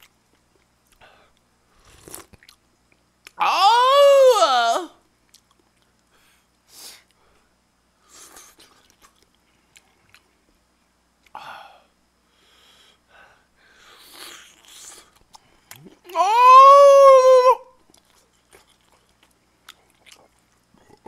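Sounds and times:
person chewing and slurping noodles: 0:01.8 - 0:02.6, 0:08.1 - 0:10.3, 0:13.9 - 0:16.2, 0:17.9 - 0:21.0.

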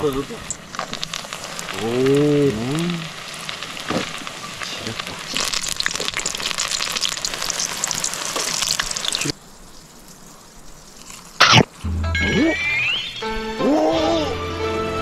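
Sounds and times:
fish deep-frying in hot oil: 0:00.0 - 0:11.8.

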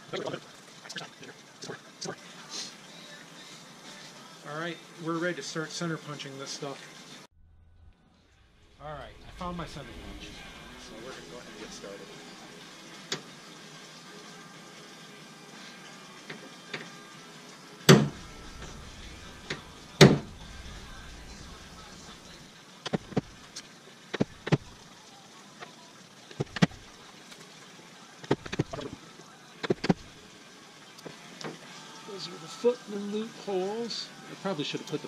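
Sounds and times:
hammer striking a center punch: 0:17.9 - 0:18.2, 0:20.0 - 0:20.3.

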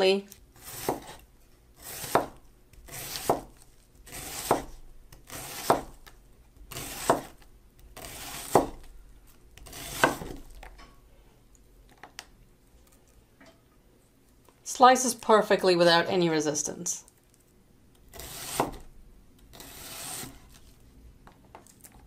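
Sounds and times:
knife chopping onion on board: 0:00.6 - 0:01.2, 0:01.8 - 0:08.9, 0:09.6 - 0:10.7, 0:18.1 - 0:18.9.

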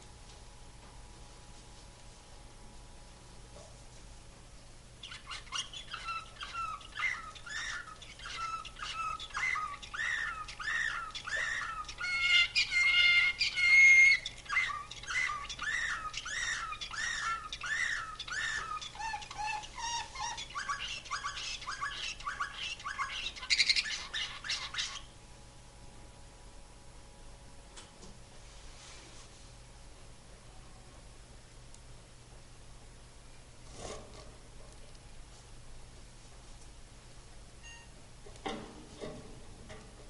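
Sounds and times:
canary singing trills: 0:05.0 - 0:25.2.

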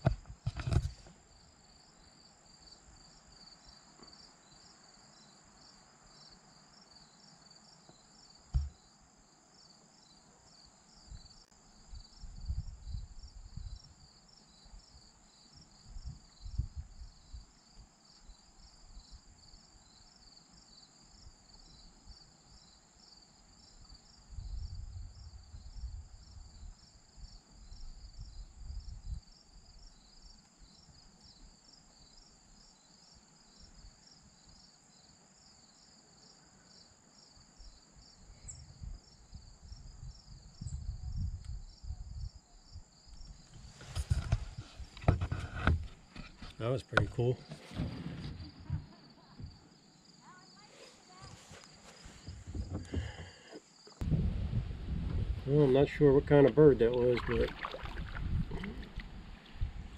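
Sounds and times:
insects pulsing trill: 0:01.3 - 0:44.4.

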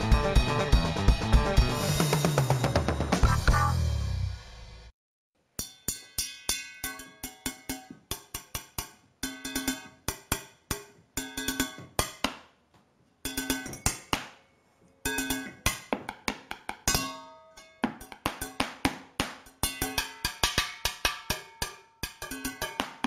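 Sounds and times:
sticks striking kitchen objects: 0:05.5 - 0:12.5, 0:15.0 - 0:23.0.

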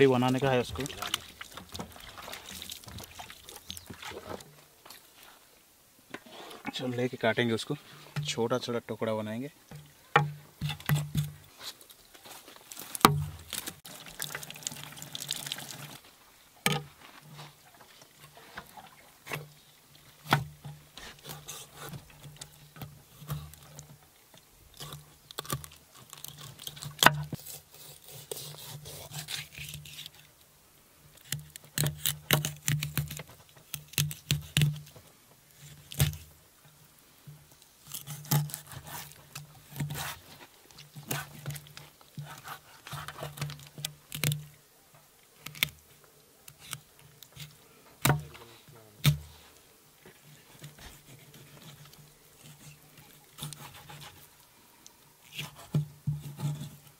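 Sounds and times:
knife scraping fish: 0:24.8 - 0:30.3, 0:37.9 - 0:40.4, 0:41.0 - 0:44.3, 0:50.8 - 0:54.3, 0:55.2 - 0:56.9.

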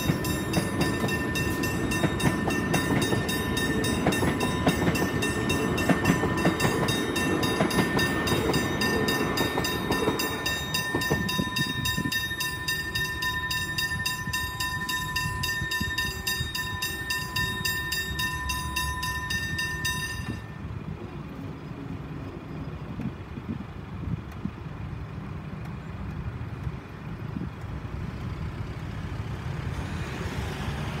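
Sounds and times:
level crossing bell ringing: 0:00.0 - 0:20.7.

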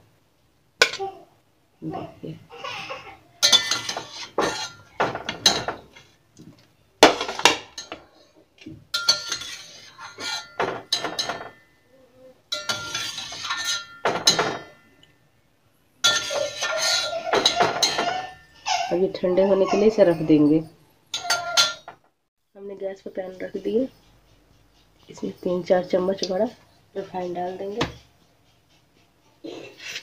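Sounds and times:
metal utensils clinking on pot: 0:00.8 - 0:01.1, 0:03.4 - 0:06.1, 0:07.0 - 0:08.2, 0:08.9 - 0:11.7, 0:12.5 - 0:15.0, 0:16.0 - 0:18.6, 0:21.1 - 0:22.0.

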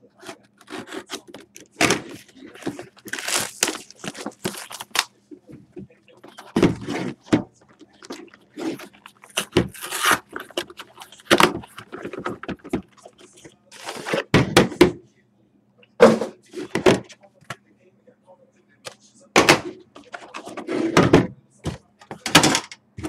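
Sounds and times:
packaging crinkling and tearing: 0:00.2 - 0:05.1, 0:07.8 - 0:13.2.

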